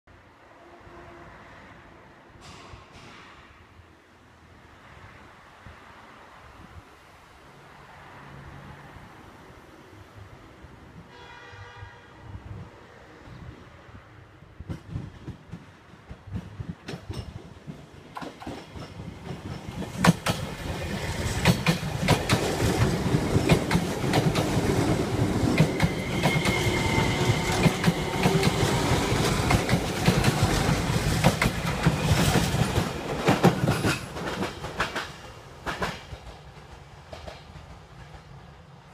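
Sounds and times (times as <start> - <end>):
electric train passing: 12.2 - 38.9
wheels clicking over rail joints: 14.7 - 26.7, 27.4 - 38.4.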